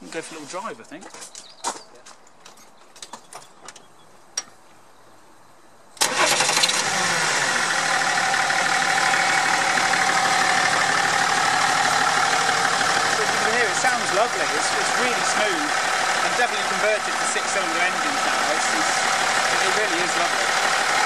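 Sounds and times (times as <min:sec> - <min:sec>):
diesel engine starting and idling: 0:06.0 - 0:21.0.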